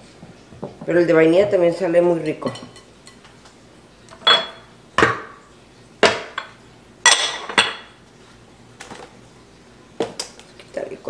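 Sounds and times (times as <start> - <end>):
glass dishes clinking: 2.2 - 3.2, 4.1 - 4.7, 6.0 - 8.0.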